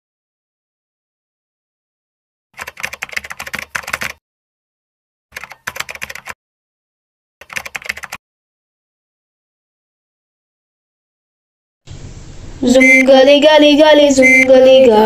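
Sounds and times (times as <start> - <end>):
keyboard key clicks: 5.4 - 6.4.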